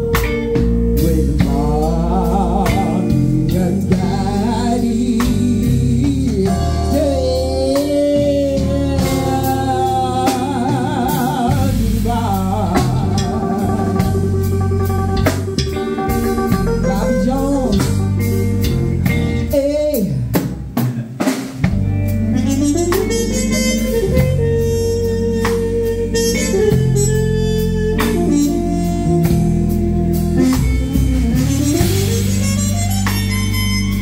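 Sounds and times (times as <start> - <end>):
live blues band playing: 0.0 - 34.0.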